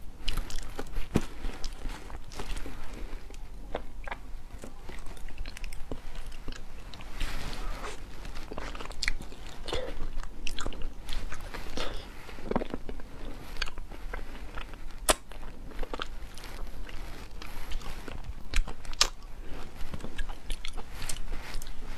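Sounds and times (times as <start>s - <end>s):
wet chewing and smacking: 0.2s - 21.8s.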